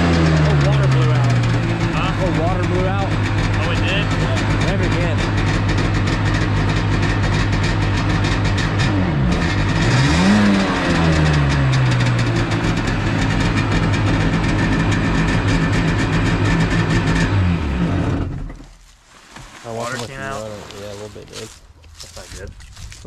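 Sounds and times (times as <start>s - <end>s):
jet ski engine revving: 0.0s - 18.6s.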